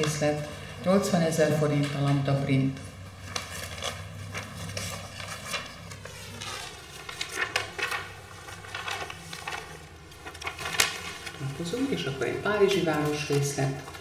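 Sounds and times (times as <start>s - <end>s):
faint clicks and rustles: 2.8s - 12.1s.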